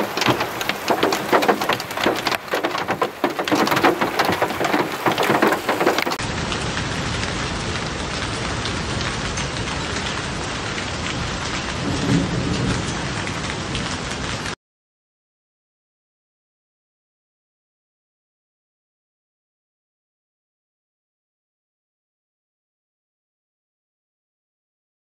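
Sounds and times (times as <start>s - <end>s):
hailstones clattering on hard surfaces: 0.0s - 6.2s
hail and rain falling: 0.0s - 14.6s.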